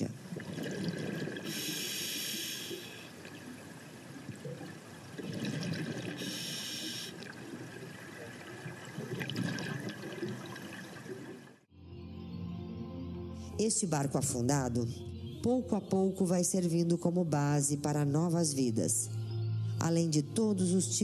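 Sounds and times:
low bubbling and gurgling: 0.0s - 11.7s
exhaled bubbles hissing underwater: 0.2s - 11.5s.

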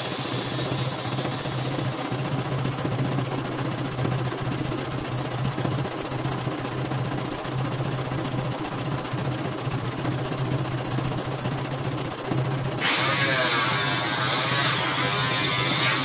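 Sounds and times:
embroidery machine stitching: 12.7s - 16.0s.

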